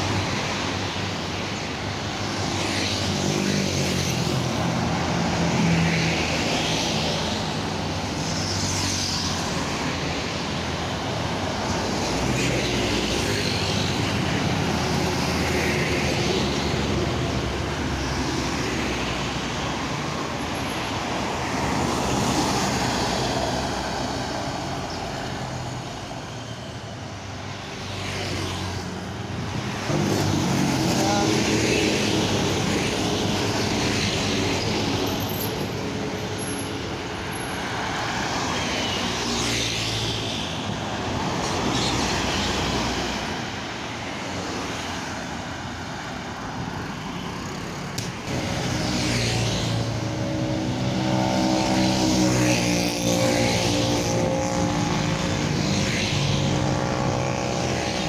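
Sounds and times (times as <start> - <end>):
engine hum and tyre noise: 0.0 - 58.0
road traffic passing: 0.0 - 58.0.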